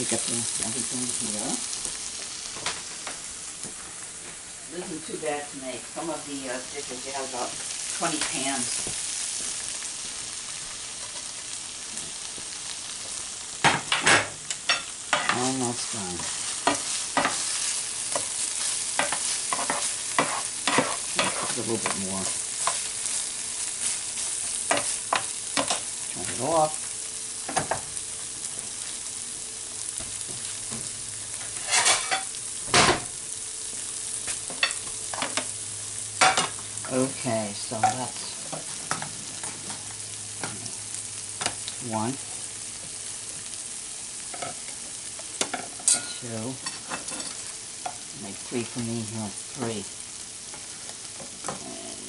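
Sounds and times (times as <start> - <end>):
sauce sizzling in a frying pan: 0.0 - 52.0
metal tongs scraping a pan: 14.7 - 25.9, 31.5 - 32.3, 45.4 - 48.0.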